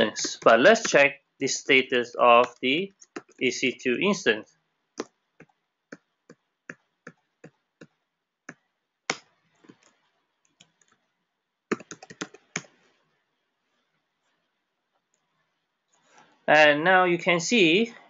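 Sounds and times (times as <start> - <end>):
computer keyboard typing: 0.0 - 1.0, 2.4 - 3.4, 11.7 - 12.8.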